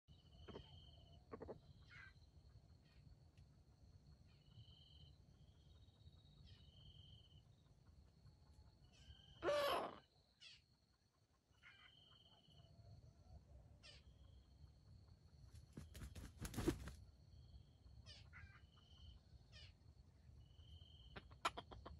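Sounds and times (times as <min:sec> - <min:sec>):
junglefowl call: 0:09.4 - 0:10.6.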